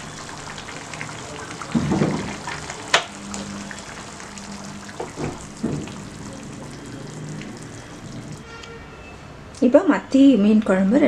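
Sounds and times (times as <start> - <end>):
curry simmering and bubbling: 0.0 - 8.5
soft knocks: 5.0 - 6.1.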